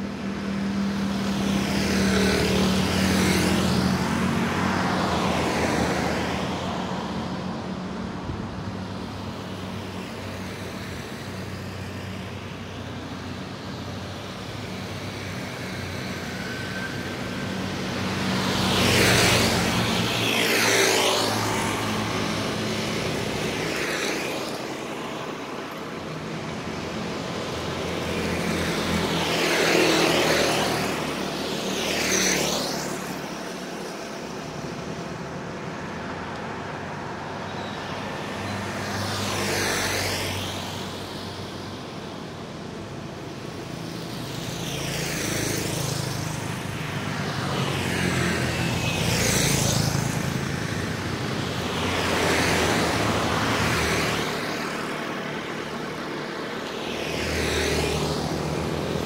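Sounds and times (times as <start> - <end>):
scooters and cars driving past: 0.0 - 59.0.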